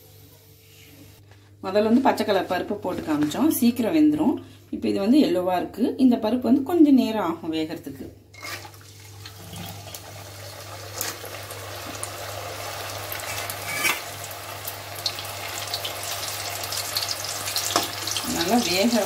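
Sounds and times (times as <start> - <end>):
beans sizzling in hot oil: 8.4 - 19.0.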